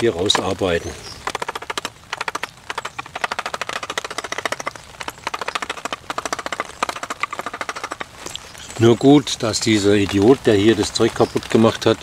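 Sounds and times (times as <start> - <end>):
hand gouge chattering on wood: 1.2 - 8.3.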